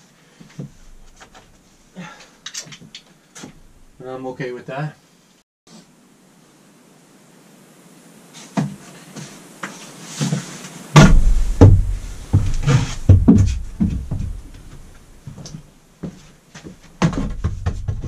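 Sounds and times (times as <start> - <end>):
wooden lumber knocks and thumps: 11.0 - 18.0.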